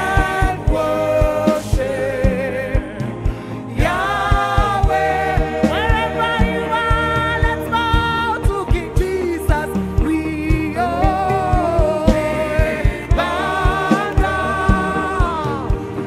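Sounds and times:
band with kick drum beat: 0.0 - 16.0
woman singing: 0.0 - 16.0.

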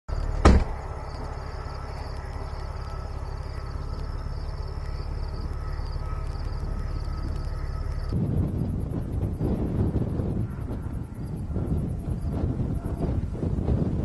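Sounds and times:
insects chirring: 0.1 - 13.9
wind buffeting microphone: 0.1 - 14.0
loud thump: 0.4 - 0.8.

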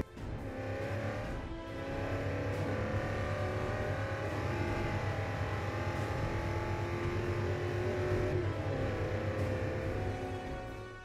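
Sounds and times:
car engine running: 0.0 - 10.7.

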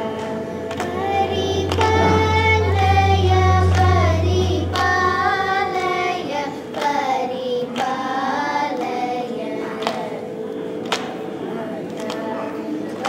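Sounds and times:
steady drone: 0.0 - 9.9
children singing: 0.0 - 10.5.

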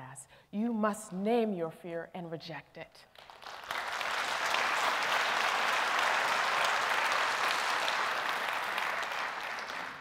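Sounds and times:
audience applauding: 3.2 - 10.0.

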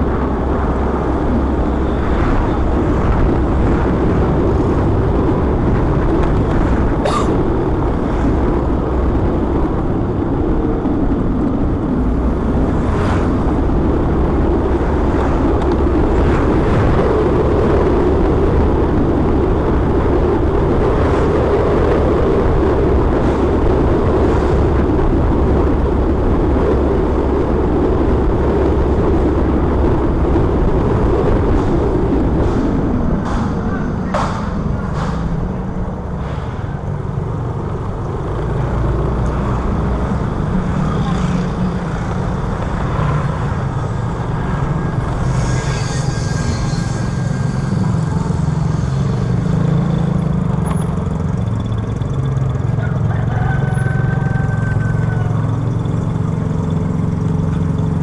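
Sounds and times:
wind and road noise: 0.0 - 58.0
motorcycle engine running: 36.8 - 58.0.

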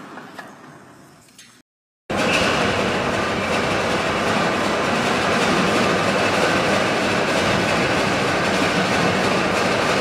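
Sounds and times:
steam engine mechanical running: 2.1 - 10.0.

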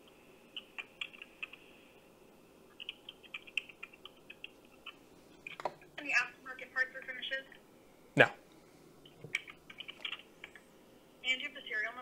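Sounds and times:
keyboard typing through phone speaker: 2.8 - 5.8, 9.0 - 10.6.

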